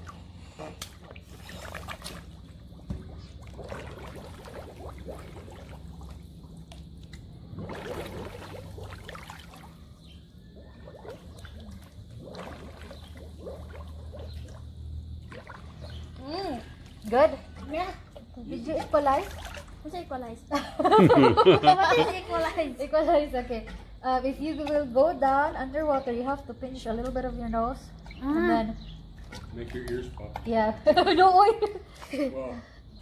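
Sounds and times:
regulator bubble bursts: 0.0s - 19.9s
muffled underwater sloshing: 0.0s - 20.5s, 21.2s - 32.3s.

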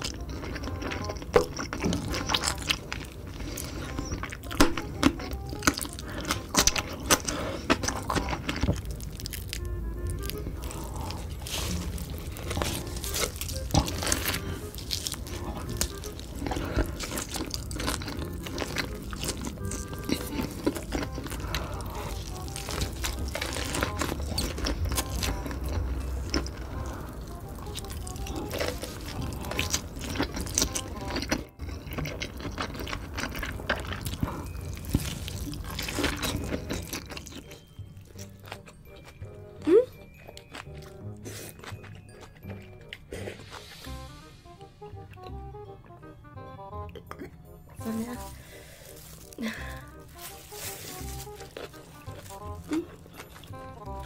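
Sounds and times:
biting and chewing pork: 0.0s - 54.0s
crunching and moist crackles: 0.0s - 54.0s
faint background music: 0.0s - 54.0s.

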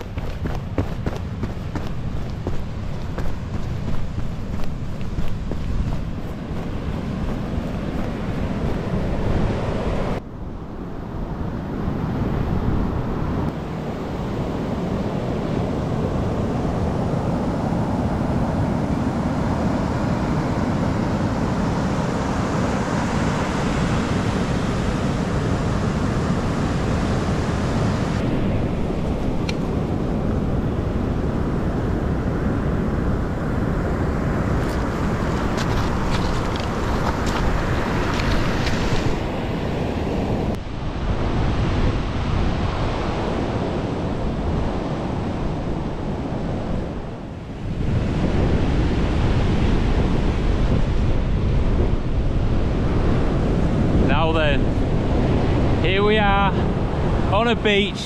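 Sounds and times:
heavy surf breaking: 0.0s - 10.2s, 33.4s - 40.6s
wind buffeting microphone: 0.0s - 58.0s.

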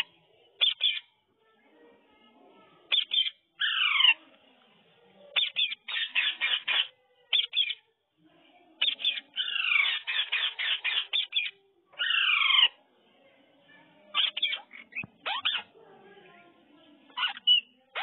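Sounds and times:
parakeet chattering: 0.0s - 1.1s, 2.9s - 4.2s, 5.3s - 7.8s, 8.8s - 12.8s, 14.1s - 15.8s, 17.1s - 18.0s
parakeet screeches: 2.9s - 4.2s, 5.4s - 7.8s, 8.8s - 12.8s, 14.1s - 15.7s, 17.1s - 18.0s.

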